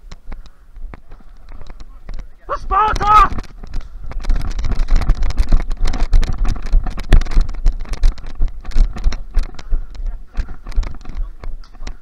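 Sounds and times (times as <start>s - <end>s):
camera handling knocks and rustles: 3.0s - 12.0s.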